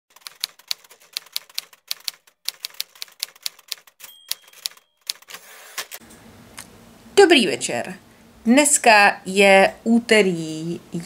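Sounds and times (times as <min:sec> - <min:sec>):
rapid clacking keystrokes: 0:00.1 - 0:05.3
short ringing tone: 0:04.0 - 0:05.1.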